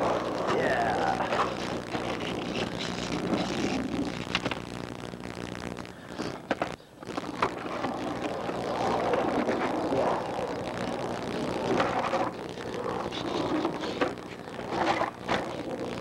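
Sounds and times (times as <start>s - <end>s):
skateboard wheels rolling on concrete: 0.0s - 4.8s, 6.1s - 16.0s
steady low hum: 0.0s - 16.0s
skateboard clacks: 6.5s - 16.0s.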